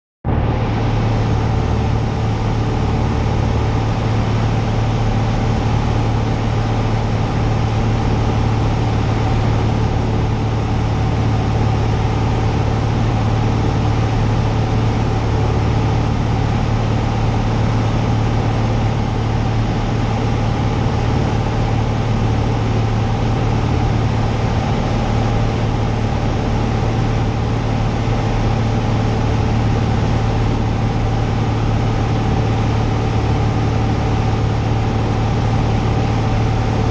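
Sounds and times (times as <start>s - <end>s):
airplane engine drone in cabin: 0.3s - 36.9s.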